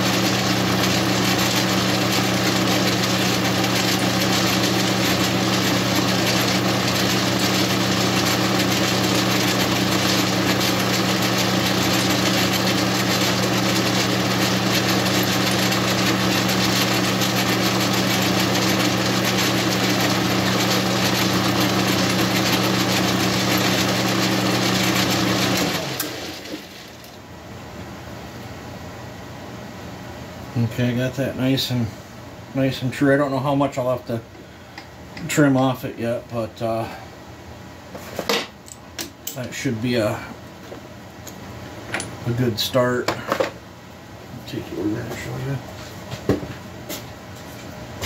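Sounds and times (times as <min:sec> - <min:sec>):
metal lathe running: 0:00.0 - 0:26.8.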